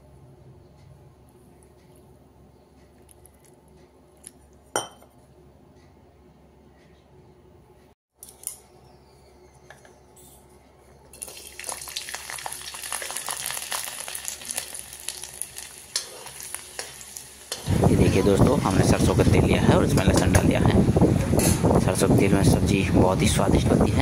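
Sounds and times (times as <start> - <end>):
garlic sizzling in oil: 11.2 - 18.9
spoon stirring in pan: 15.6 - 18.2.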